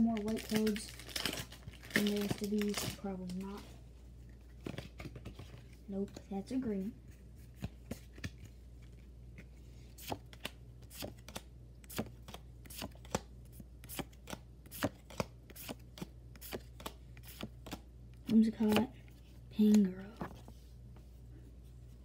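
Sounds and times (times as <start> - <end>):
trading cards flipping: 4.3 - 6.2, 7.4 - 18.8.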